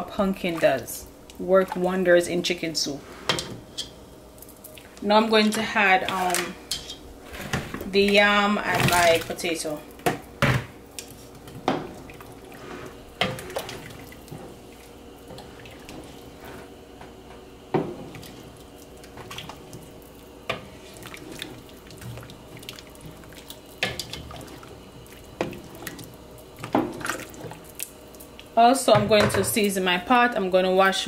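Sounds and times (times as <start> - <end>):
faint steady hum: 0.0 - 31.0
wooden spoon stirring soup: 11.0 - 28.5.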